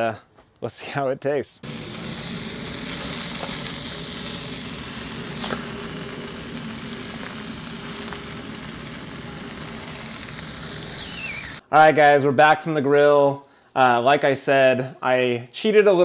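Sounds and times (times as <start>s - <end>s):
steak sizzling on grill: 1.6s - 11.6s.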